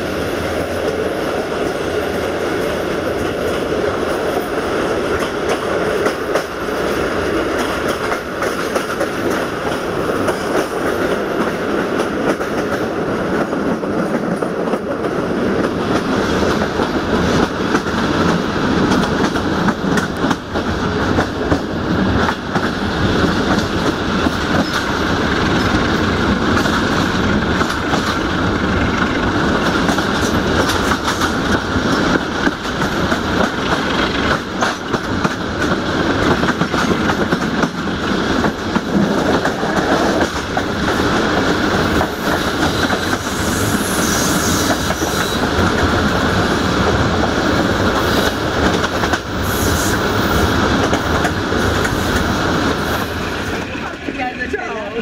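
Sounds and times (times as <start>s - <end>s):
train rumbling: 0.0s - 55.0s
wheels clicking over rail joints: 0.6s - 43.3s.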